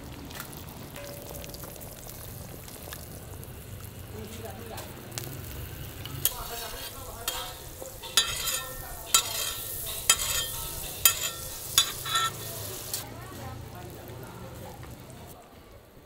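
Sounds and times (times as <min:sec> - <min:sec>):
food sizzling on a griddle: 0:00.0 - 0:15.4
metal spatula clanking on griddle: 0:01.0 - 0:01.8, 0:06.1 - 0:13.0.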